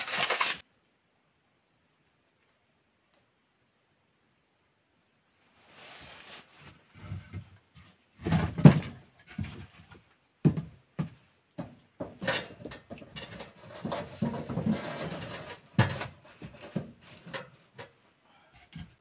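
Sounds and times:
rustling: 0:00.0 - 0:00.6, 0:05.4 - 0:10.2
firewood knocking and clattering: 0:08.2 - 0:18.0.

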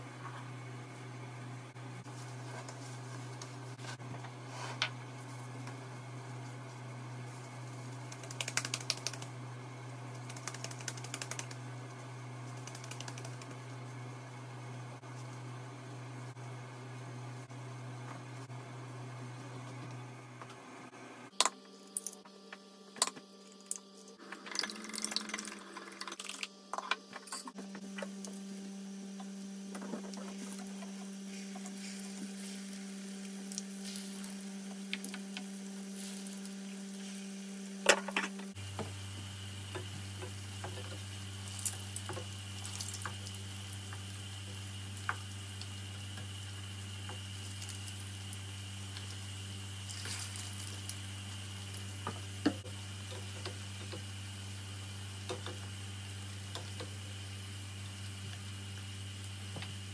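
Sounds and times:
low steady hum: 0:00.0 - 0:59.9
patties sizzling in oil: 0:29.8 - 0:38.0, 0:38.8 - 0:59.8.

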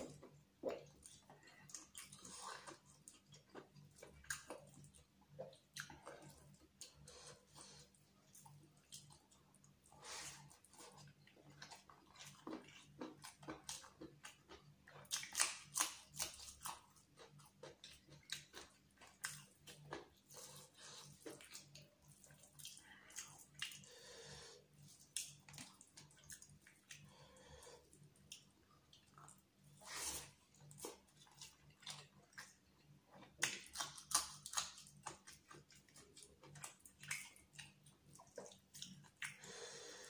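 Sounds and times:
chewing and wet mouth smacks: 0:00.0 - 0:07.0, 0:08.3 - 0:09.8, 0:10.4 - 0:23.9, 0:24.9 - 0:27.1, 0:27.9 - 0:39.5.

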